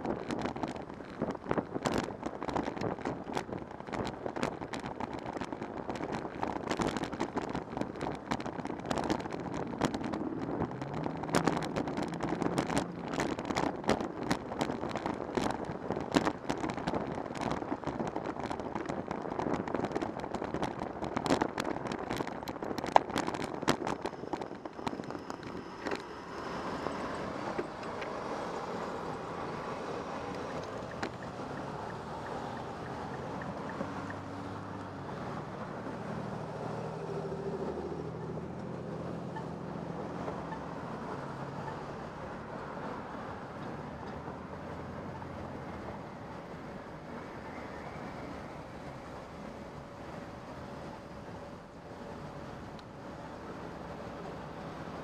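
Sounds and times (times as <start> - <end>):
bicycle rattling over rough pavement: 0.0 - 55.0
road and traffic noise: 0.0 - 55.0.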